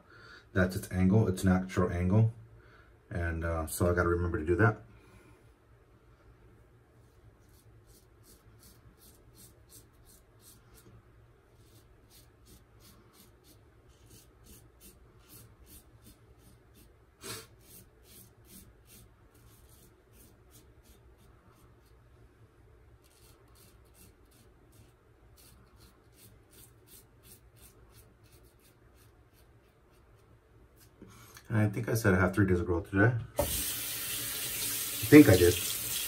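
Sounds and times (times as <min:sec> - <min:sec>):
razor scratching through stubble: 0:07.4 - 0:10.9, 0:11.6 - 0:22.0, 0:23.0 - 0:31.0.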